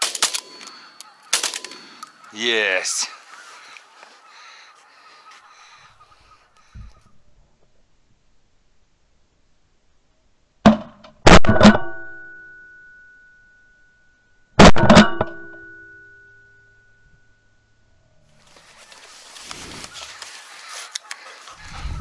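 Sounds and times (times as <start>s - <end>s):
outdoor field noise: 0.0s - 22.0s.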